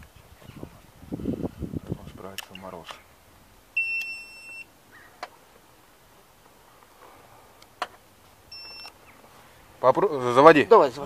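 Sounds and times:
short clicks: 2.3s - 3.0s, 3.8s - 4.6s, 8.6s - 9.0s
high electronic beep: 3.8s - 4.7s, 8.5s - 8.9s.

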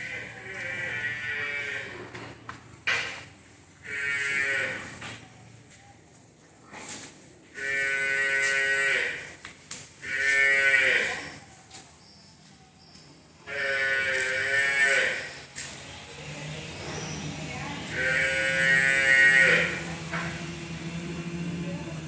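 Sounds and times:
water buffalo mooing: 13.5s - 15.3s, 17.9s - 20.0s.

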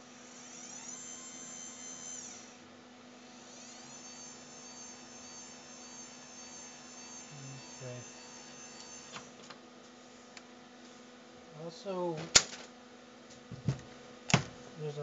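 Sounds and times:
wiper motor whining: 0.0s - 2.7s.

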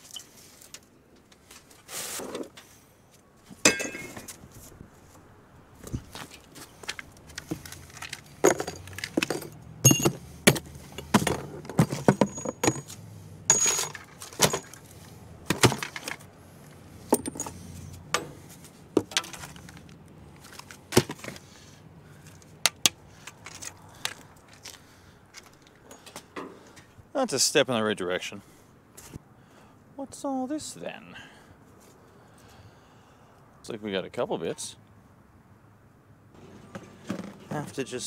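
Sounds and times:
scrap metal clinking and clattering: 3.6s - 4.4s, 6.0s - 16.3s, 17.0s - 21.4s.

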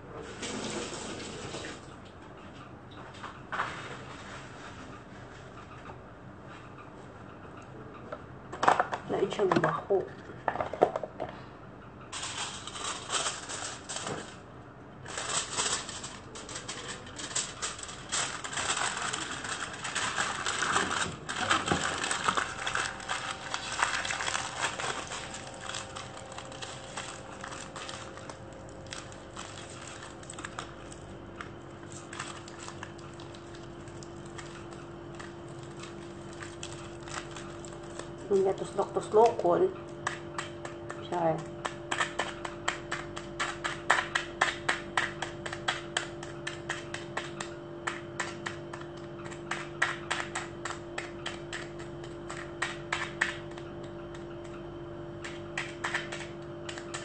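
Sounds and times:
aluminium foil crinkling: 12.1s - 47.4s, 48.2s - 54.5s.

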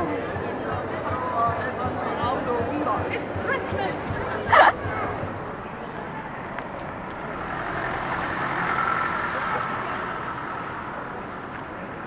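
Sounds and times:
car driving past: 5.2s - 11.6s.

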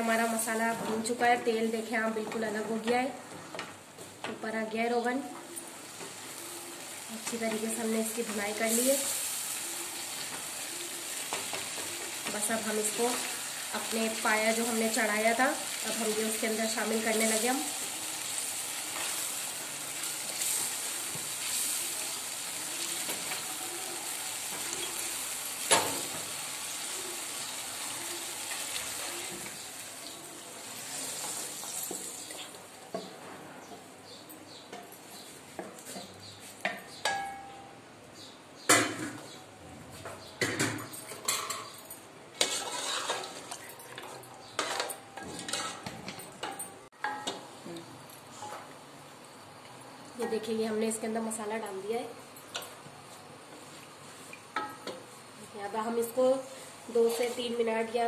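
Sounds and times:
sauce sizzling in oil: 5.7s - 32.6s
metal spoon scraping pot: 42.4s - 45.9s
wooden spoon stirring in pan: 42.4s - 46.0s.

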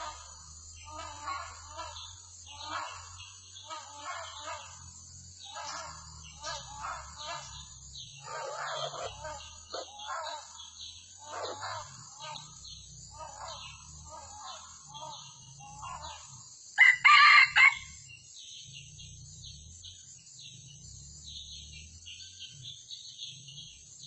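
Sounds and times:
rooster crowing: 16.8s - 18.0s.

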